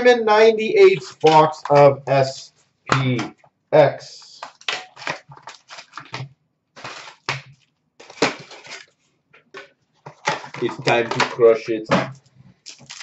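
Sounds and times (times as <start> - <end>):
foil packs rustling and crinkling: 4.4 - 9.1, 12.5 - 13.0.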